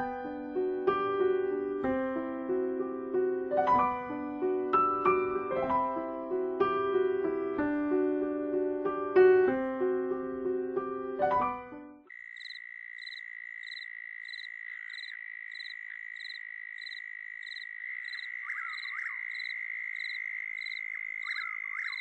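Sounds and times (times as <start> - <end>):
pulsing animal calls: 12.4 - 22.0.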